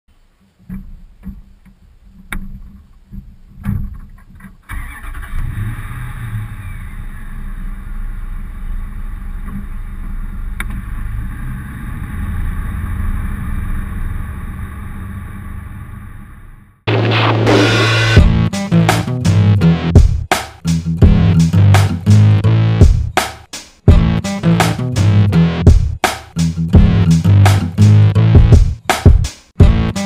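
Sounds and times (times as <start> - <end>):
car engine rumbling: 0.1 - 20.0.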